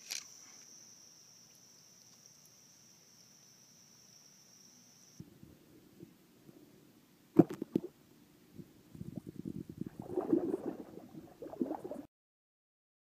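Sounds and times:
fish thrashing and splashing: 0:10.0 - 0:12.1.

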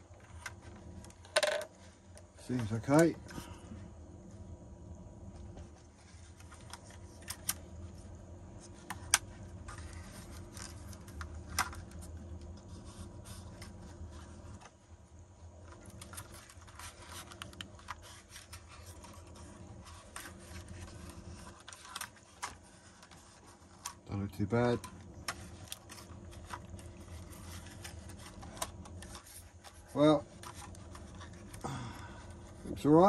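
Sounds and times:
low steady rumble: 0:00.0 - 0:33.0
plastic case scraping: 0:15.6 - 0:31.6.

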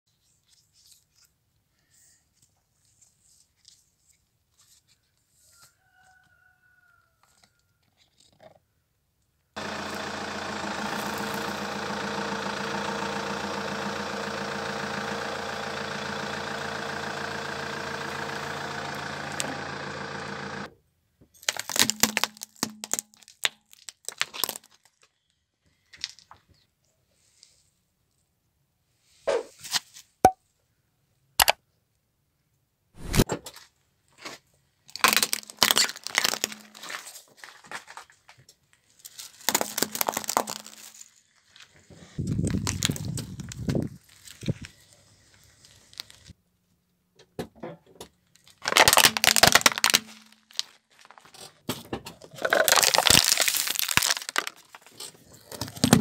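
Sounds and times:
objects crushed under car tyre: 0:21.4 - 0:25.1, 0:34.9 - 0:38.4, 0:39.0 - 0:41.5, 0:42.2 - 0:44.5, 0:48.4 - 0:56.0.

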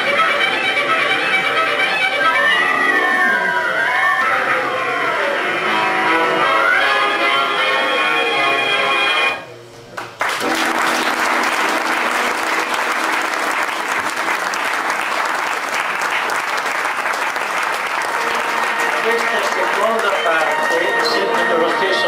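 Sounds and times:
audience applauding: 0:10.0 - 0:22.0
faint music: 0:17.6 - 0:22.0.

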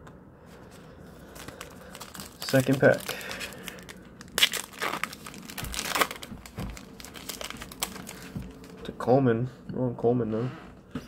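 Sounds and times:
foil wrapper crinkling: 0:01.1 - 0:08.9.

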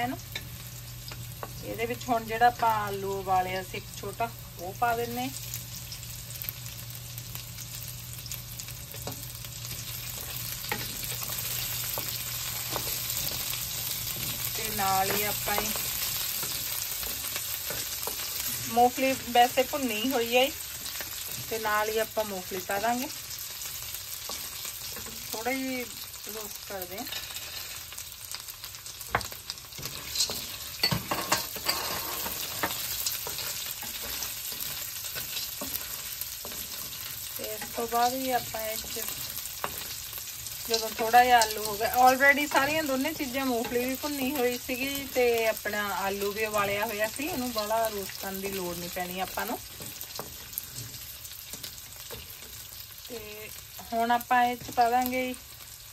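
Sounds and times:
food sizzling in hot oil: 0:00.0 - 0:55.9
wooden spatula scraping pan: 0:29.8 - 0:40.0.

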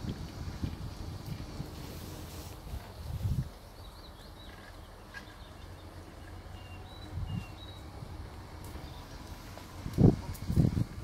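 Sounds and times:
low bumps: 0:00.0 - 0:11.0
small birds chirping: 0:02.8 - 0:09.5.

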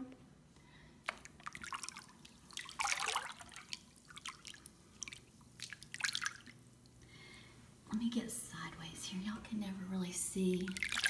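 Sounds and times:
hand splashing through bathwater: 0:01.0 - 0:06.6, 0:10.7 - 0:11.0
water dripping: 0:01.0 - 0:07.1, 0:10.6 - 0:11.0.

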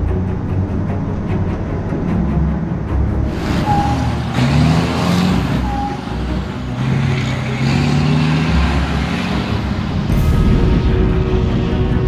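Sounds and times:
truck diesel engine revving past: 0:03.2 - 0:12.0.

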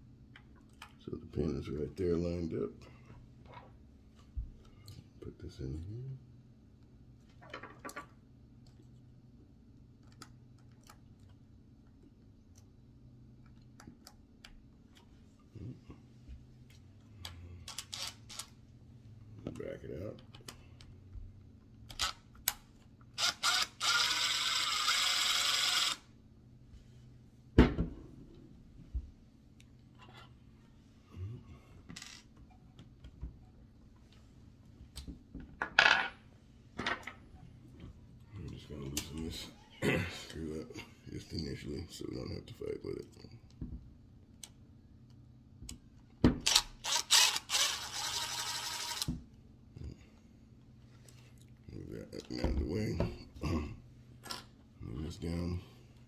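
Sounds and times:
cordless drill whirring: 0:17.9 - 0:18.4, 0:23.2 - 0:26.0, 0:46.5 - 0:49.1.

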